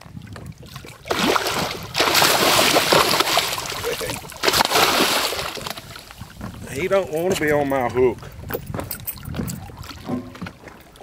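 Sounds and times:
fish splashing water: 0.6s - 6.4s.

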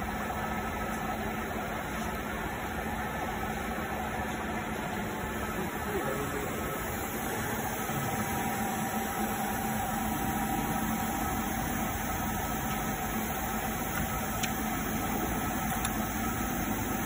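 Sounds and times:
welding machine humming and hissing: 4.2s - 17.0s.

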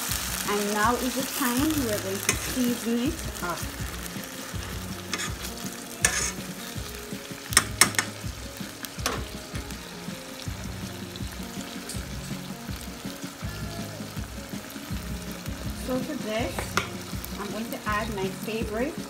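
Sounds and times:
food sizzling in frying pan: 0.0s - 19.0s
fork scraping against pan: 4.6s - 6.6s.

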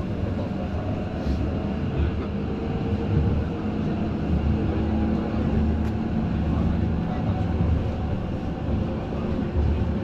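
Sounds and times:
tram wheels rumbling on rails: 0.0s - 10.0s.

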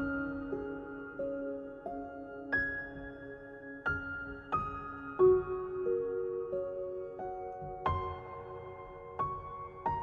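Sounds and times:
soft slow instrumental music: 0.0s - 10.0s.

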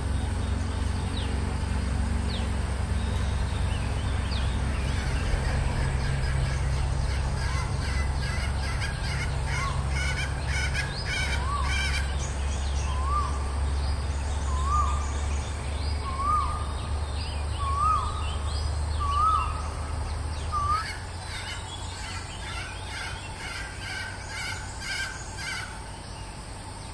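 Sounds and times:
small birds chirping: 0.0s - 26.9s.

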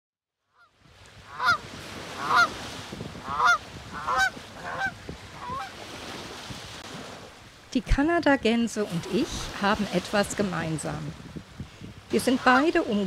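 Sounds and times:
geese honking: 1.3s - 1.6s, 2.2s - 2.5s, 3.2s - 5.7s.

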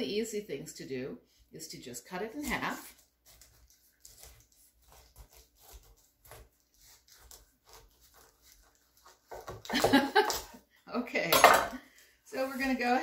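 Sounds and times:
knife sawing through pineapple: 2.9s - 9.4s.

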